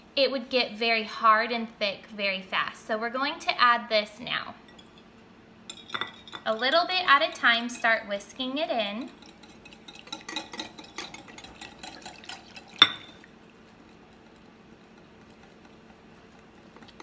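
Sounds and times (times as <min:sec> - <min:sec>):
ringing glass clink: 0:12.8 - 0:13.1.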